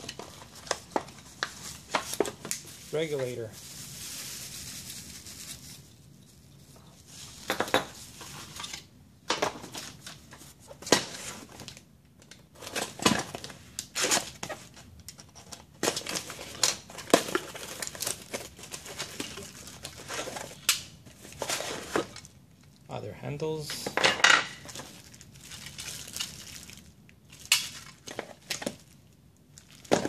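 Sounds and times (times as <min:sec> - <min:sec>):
plastic bags crinkling: 0:00.0 - 0:08.8, 0:12.5 - 0:22.8, 0:24.6 - 0:30.0.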